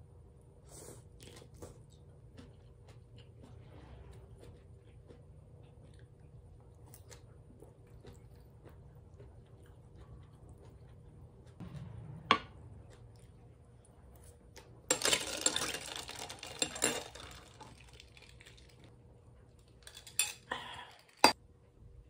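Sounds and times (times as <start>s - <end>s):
ice cubes rattling in a glass: 14.9s - 18.7s.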